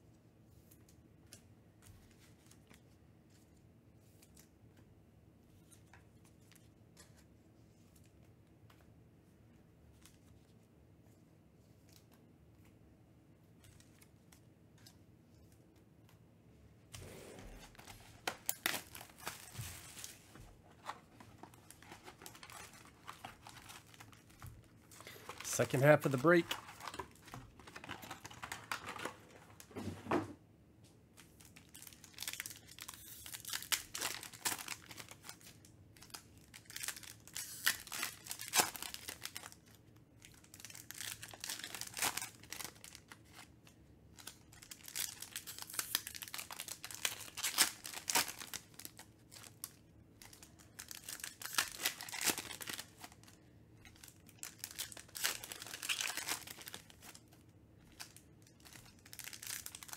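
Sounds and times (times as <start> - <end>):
foil packs tearing and crinkling: 17.7 - 20.2, 20.8 - 29.6, 31.4 - 43.5, 44.2 - 49.6, 50.2 - 59.9.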